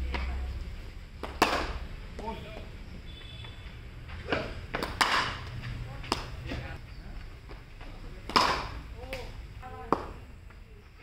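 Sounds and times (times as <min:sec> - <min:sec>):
cricket ball cracking on bat: 0:01.2 - 0:02.3, 0:04.3 - 0:05.5, 0:06.1 - 0:06.6, 0:08.2 - 0:10.2.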